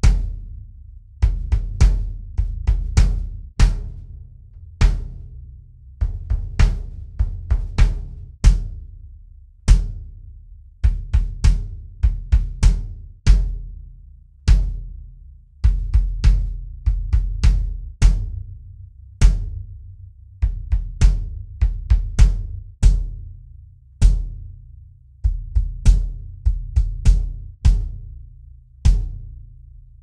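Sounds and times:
bass drum kicks: 0:00.0 - 0:09.0, 0:09.7 - 0:28.2, 0:28.8 - 0:29.6.

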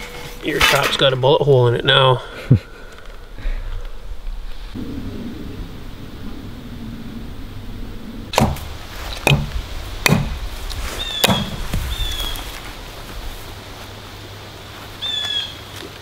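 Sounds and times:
hatchet chopping wood: 0:08.4 - 0:10.4, 0:11.2 - 0:11.6.

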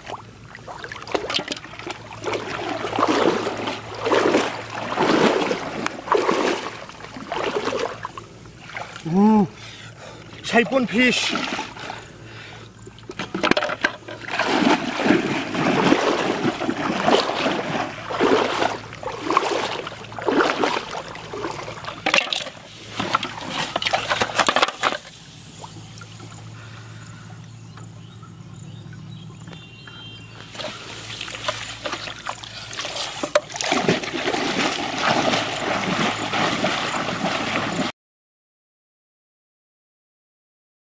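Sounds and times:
person wading through water: 0:00.0 - 0:24.6, 0:30.5 - 0:37.9
water splashing and sloshing: 0:00.0 - 0:28.0, 0:28.6 - 0:37.9.

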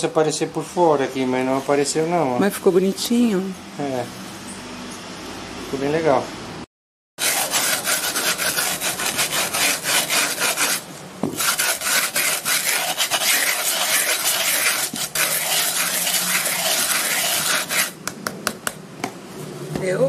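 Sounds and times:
metal rasp scraping cement: 0:07.2 - 0:18.0.

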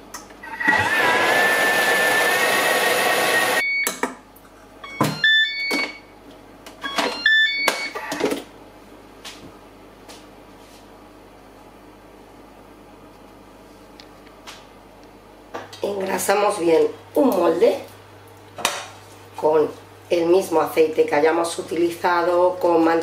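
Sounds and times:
mixer blades whirring: 0:00.4 - 0:03.6.

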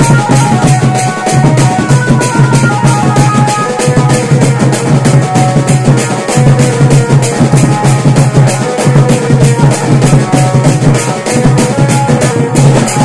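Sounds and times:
band party music: 0:00.0 - 0:13.0
quick drum beat: 0:00.0 - 0:13.0.

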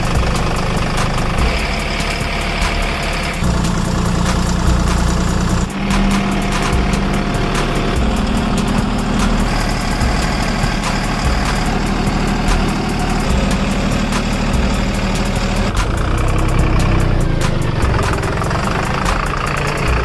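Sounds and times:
heavy truck engine idling: 0:00.0 - 0:20.0.

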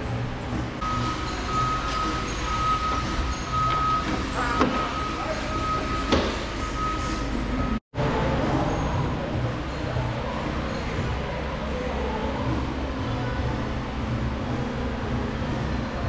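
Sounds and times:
diesel engine running: 0:00.0 - 0:16.0
electronic warning beeper: 0:00.8 - 0:07.8.

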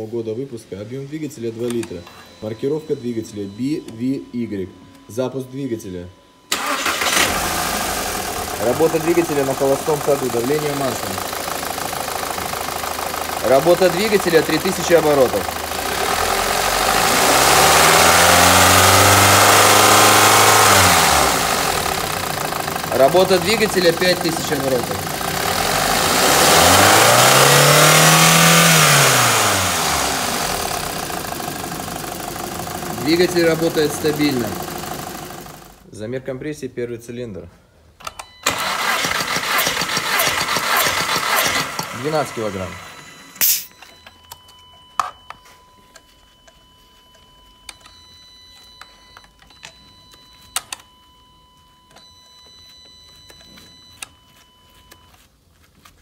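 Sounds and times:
faint steady high tone: 0:00.0 - 0:06.5, 0:42.1 - 0:55.2
car engine revving and idling: 0:07.1 - 0:35.8
short hiss of air release: 0:43.4 - 0:43.7.

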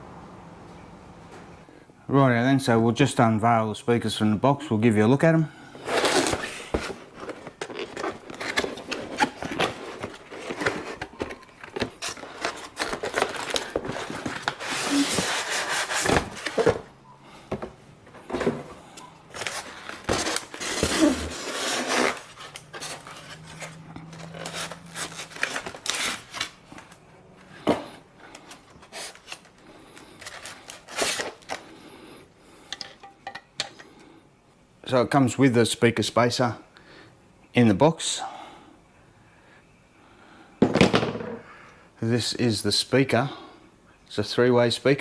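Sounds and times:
cardboard box opened: 0:05.8 - 0:16.9, 0:19.3 - 0:26.9
foam and card rubbing: 0:11.9 - 0:16.6.

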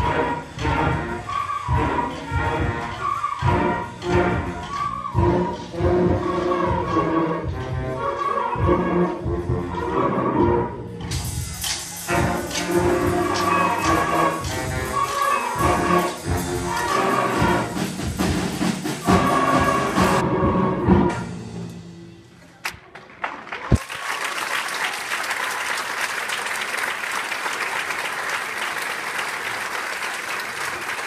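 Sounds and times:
symphonic band playing: 0:00.0 - 0:22.5
audience applause: 0:22.6 - 0:31.0.

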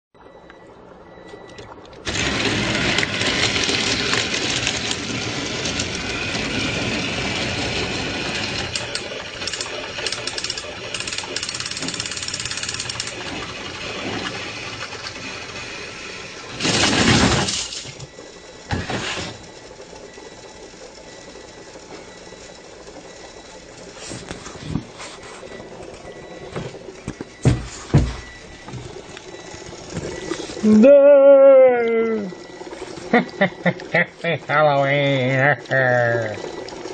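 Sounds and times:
toy trains whirring on track: 0:02.0 - 0:22.0
toy train clattering crash: 0:16.6 - 0:18.0.

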